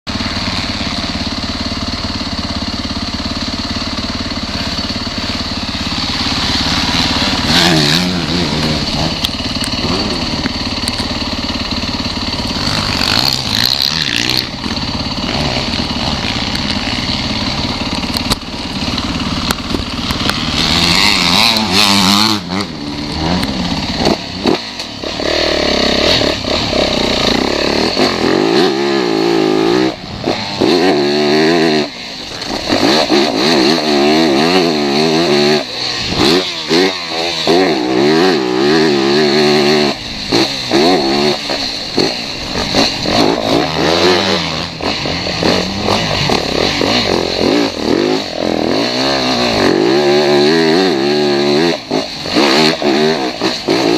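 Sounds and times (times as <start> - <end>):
dirt bike engine revving: 0.1 - 53.9.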